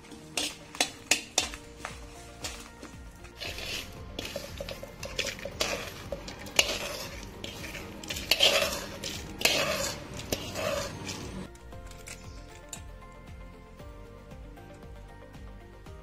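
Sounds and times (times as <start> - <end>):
spoon scraping metal pan: 0.0 - 1.9, 3.2 - 12.8.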